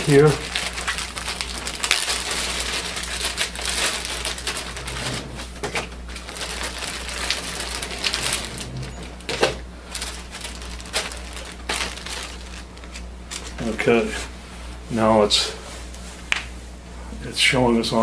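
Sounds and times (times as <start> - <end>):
packs clicking on printer: 0.0 - 13.6
plastic wrap crinkling: 0.0 - 14.4.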